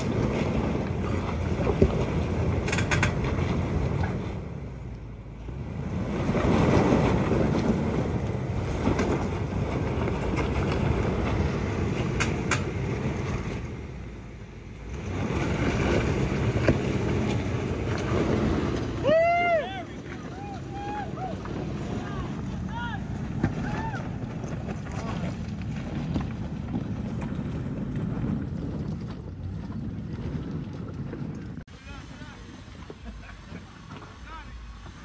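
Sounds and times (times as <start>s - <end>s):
engine running at low revs: 0.0s - 35.0s
tyres crunching stones: 21.4s - 31.6s.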